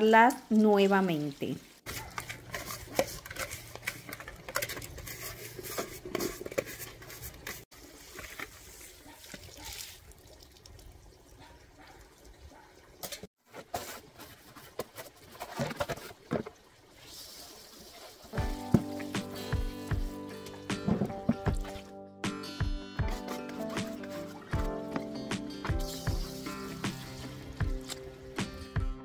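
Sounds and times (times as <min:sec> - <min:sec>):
scraping and scooping soil: 0:01.8 - 0:10.0, 0:13.0 - 0:19.2, 0:23.0 - 0:28.1.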